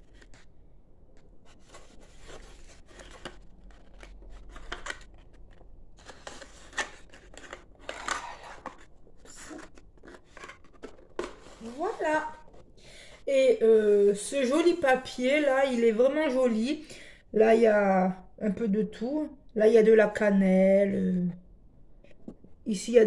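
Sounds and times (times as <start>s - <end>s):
cardstock rustling and scraping: 1.4s - 12.7s.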